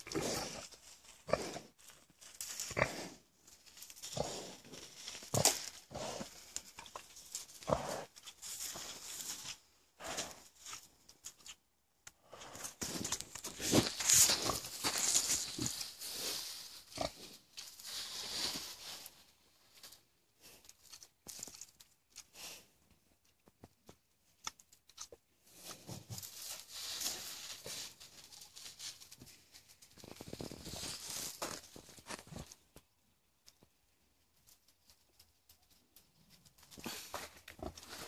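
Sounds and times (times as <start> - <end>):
pig grunting: 0.0 - 1.7, 7.6 - 8.2
scuffing in sandy dirt: 12.6 - 17.1.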